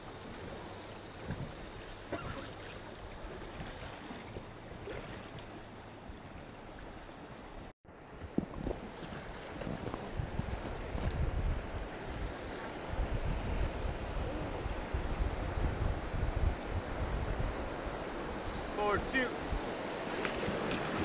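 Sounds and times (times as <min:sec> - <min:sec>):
wind buffeting microphone: 0:06.1 - 0:18.8
river water rushing: 0:16.7 - 0:21.0.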